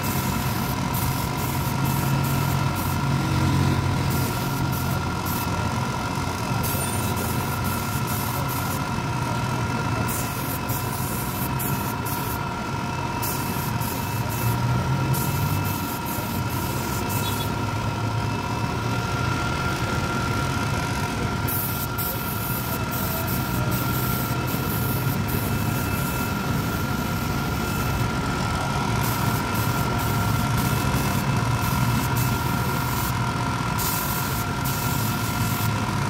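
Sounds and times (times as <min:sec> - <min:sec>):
air compressor running: 0:00.0 - 0:36.0
air hissing: 0:13.2 - 0:17.5, 0:33.8 - 0:35.7.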